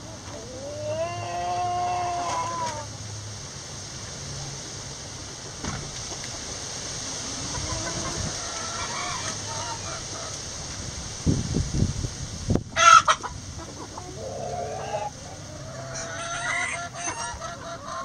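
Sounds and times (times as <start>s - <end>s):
hens clucking: 0.0s - 3.0s, 7.1s - 10.8s, 12.7s - 18.0s
steady background hiss: 0.0s - 18.0s
wind buffeting microphone: 7.4s - 8.6s, 10.5s - 14.0s.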